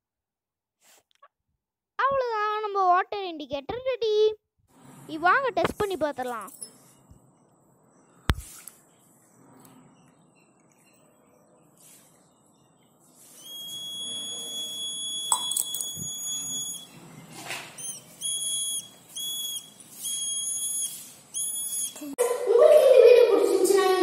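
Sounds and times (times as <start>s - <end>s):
high-pitched electronic buzzer beeping: 13.4s - 17.0s, 17.8s - 22.1s.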